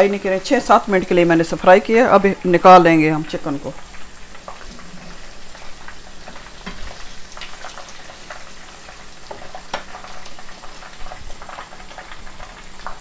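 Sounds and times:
hot oil sizzling and bubbling: 0.0s - 13.0s
oil crackles and sharp pops: 3.2s - 13.0s.

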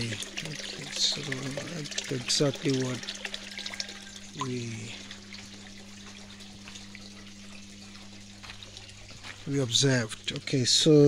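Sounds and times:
steady low hum: 0.0s - 11.0s
water trickling into tank: 0.0s - 11.0s.

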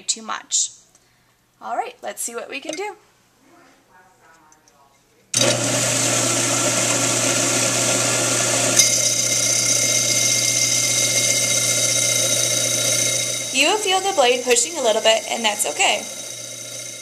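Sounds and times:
bandsaw motor humming: 5.4s - 17.0s
blade grinding glass: 8.7s - 17.0s.

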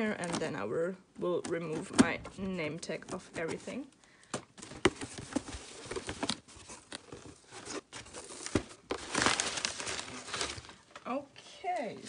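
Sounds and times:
packing paper crinkling: 4.6s - 11.0s.

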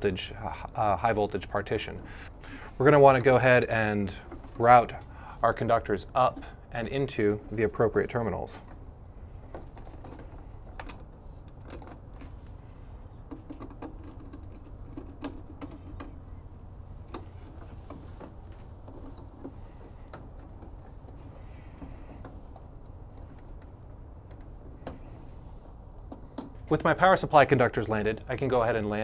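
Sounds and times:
steady low hum: 0.0s - 29.0s
small clicks ticks and rustles of wires: 8.6s - 28.8s.

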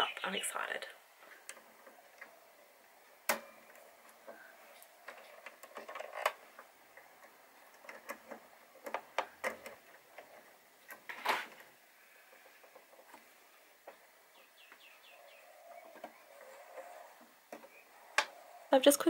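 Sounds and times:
plastic and metal parts clicking: 3.3s - 14.1s.

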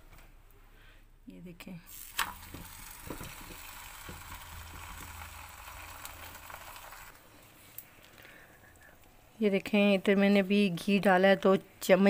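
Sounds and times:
ghee sizzling on a hot pan: 1.9s - 7.2s.

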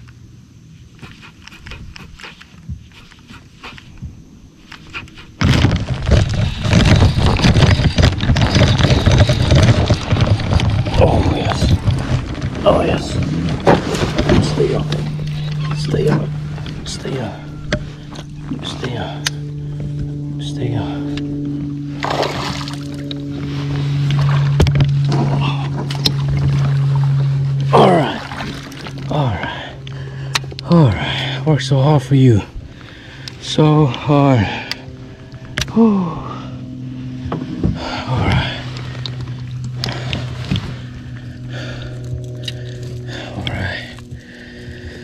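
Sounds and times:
steady low hum: 0.0s - 45.0s
handling rumble on microphone: 1.0s - 33.1s, 33.8s - 45.0s
fish splashing in water: 22.0s - 23.0s.

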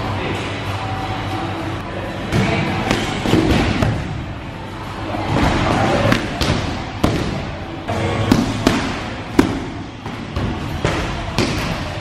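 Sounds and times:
background music: 0.0s - 12.0s
punches slapping on pads: 8.3s - 11.8s.

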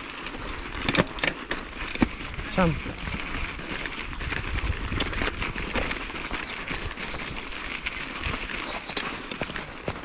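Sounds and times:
bike rattling: 0.0s - 10.0s
tyres crunching on gravel: 0.0s - 10.0s.

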